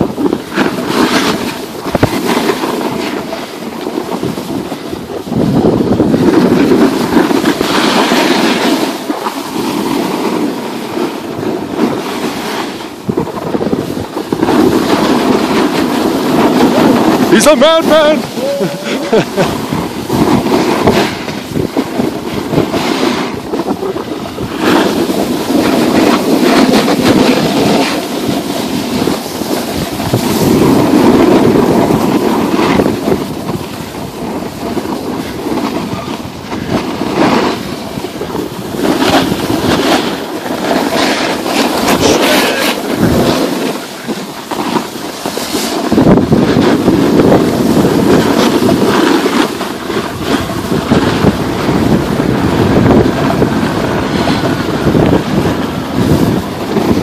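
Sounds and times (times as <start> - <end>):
skis scraping on packed snow: 0.0 - 57.0
wind rushing over microphone: 0.0 - 57.0.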